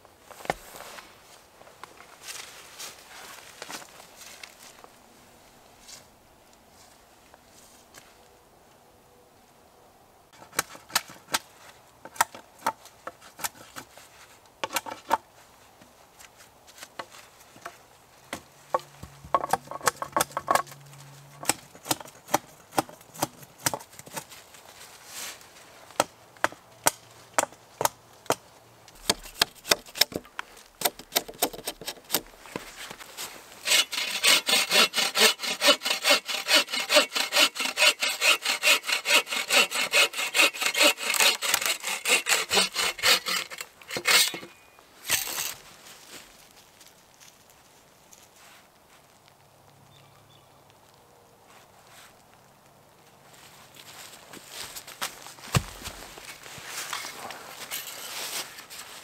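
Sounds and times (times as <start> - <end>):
hatchet chopping wood: 21.4 - 24.2, 29.0 - 32.3
hand saw cutting log: 29.0 - 30.2, 30.8 - 32.3, 33.6 - 44.5.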